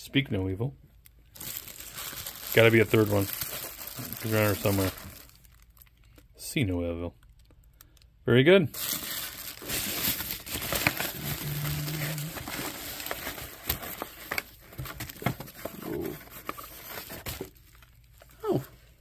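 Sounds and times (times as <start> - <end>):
packaging crinkling and rustling: 1.3 - 6.2, 8.7 - 18.4.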